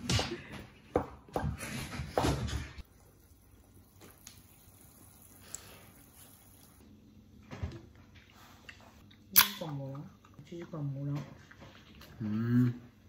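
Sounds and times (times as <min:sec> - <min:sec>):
oil sizzling and bubbling: 0:02.6 - 0:09.3.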